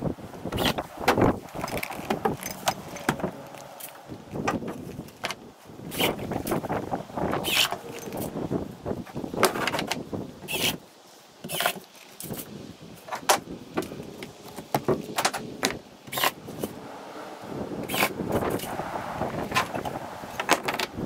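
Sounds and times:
tool belt rattling: 0.6 - 6.6, 7.4 - 8.3
hand tools knocking and clattering: 1.1 - 3.7.

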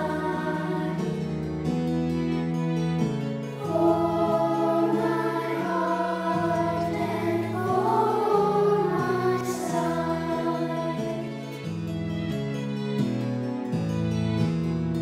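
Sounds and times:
children's choir singing: 0.0 - 1.4, 3.6 - 11.6
instrumental accompaniment: 0.0 - 15.0.

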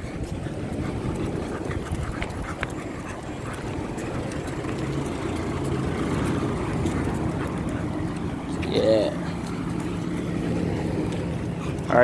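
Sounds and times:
street traffic rumble: 0.0 - 12.0
wind buffeting microphone: 0.0 - 12.0
faint ticks: 1.1 - 8.4.

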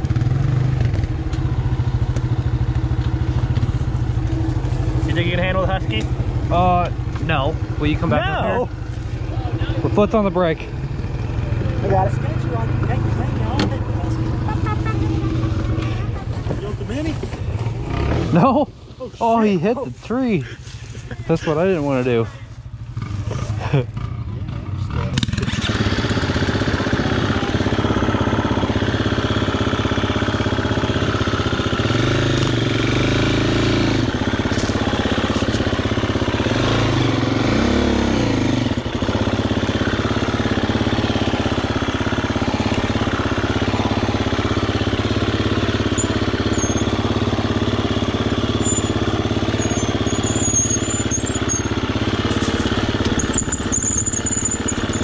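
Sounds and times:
dirt bike engine revving: 0.0 - 55.0.

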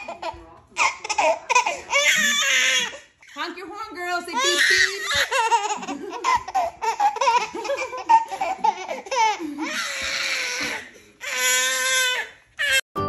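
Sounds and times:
baby laughing: 0.0 - 3.1, 4.4 - 12.8.

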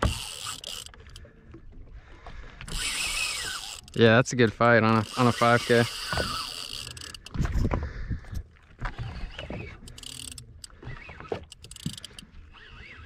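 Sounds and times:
boat ambient noise: 0.0 - 13.0
sharp clicks and knocks: 11.3 - 12.2.

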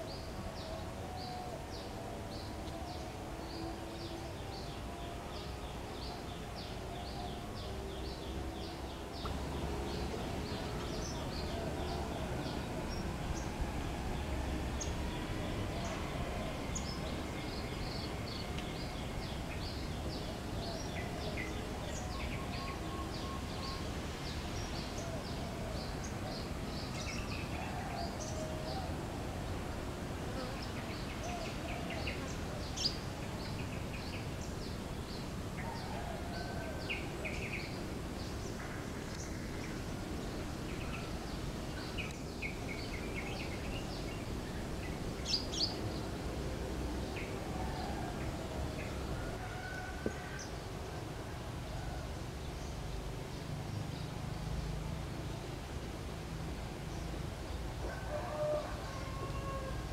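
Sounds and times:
low wavering bird calls: 0.0 - 24.0.

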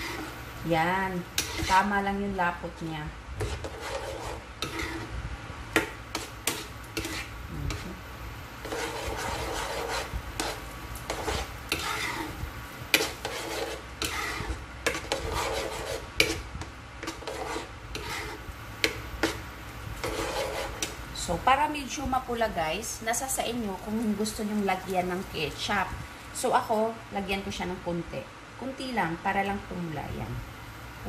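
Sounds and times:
spoon stirring thick sauce: 1.4 - 1.8, 3.4 - 5.1, 5.8 - 7.8, 8.6 - 21.0.

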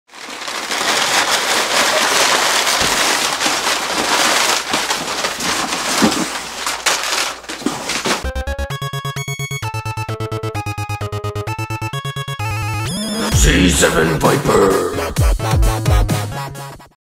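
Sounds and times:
packing paper crinkling: 0.1 - 8.2.

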